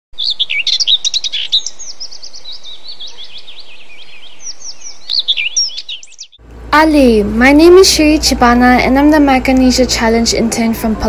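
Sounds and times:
birds chirping: 0.2 - 6.7.

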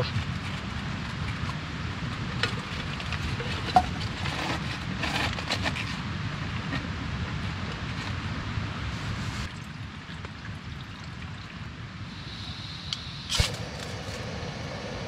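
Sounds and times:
steady low rumble: 11.6 - 15.0.

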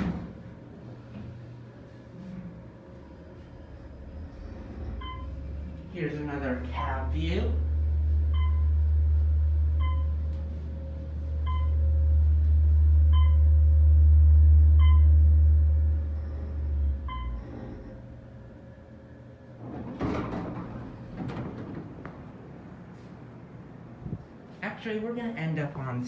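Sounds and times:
elevator doors sliding open: 0.0 - 12.6, 15.9 - 24.5
elevator low rumble: 0.0 - 26.0
elevator ding: 4.0 - 5.7, 7.0 - 23.0.

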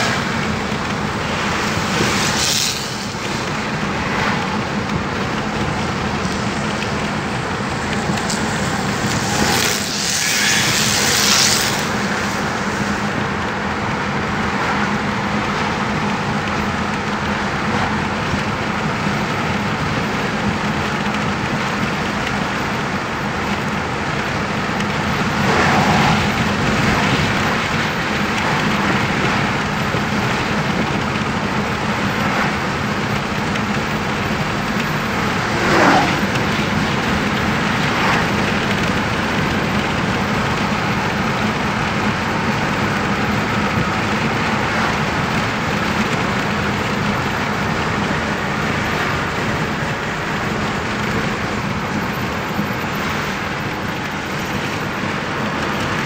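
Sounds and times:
truck passing whoosh: 0.0 - 16.6, 24.0 - 46.2
car tyre and engine hum: 0.0 - 56.0.

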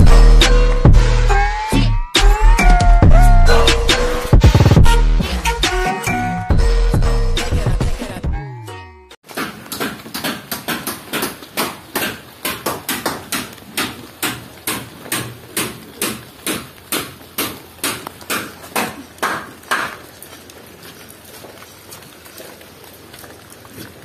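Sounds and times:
footsteps on wet gritty ground: 9.2 - 24.0.

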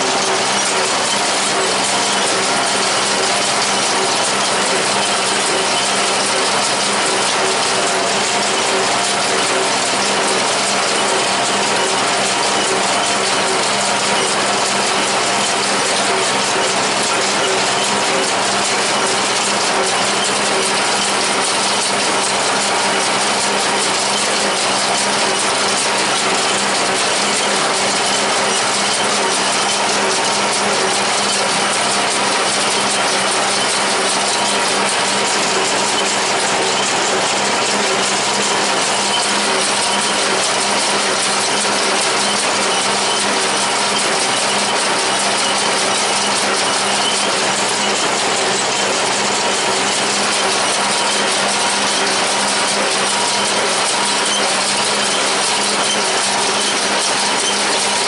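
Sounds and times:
hay baler running: 0.0 - 58.0
tractor engine running: 0.0 - 58.0.

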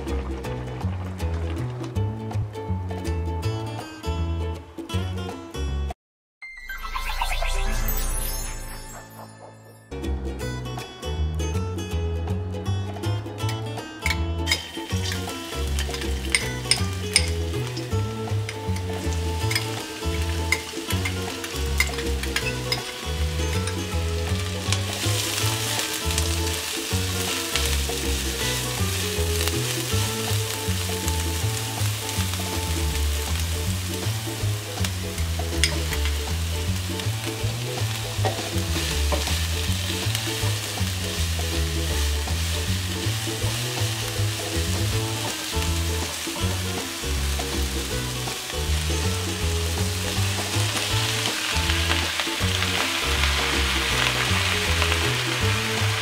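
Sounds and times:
background music: 0.0 - 56.0
onion sizzling in hot oil: 13.4 - 56.0.

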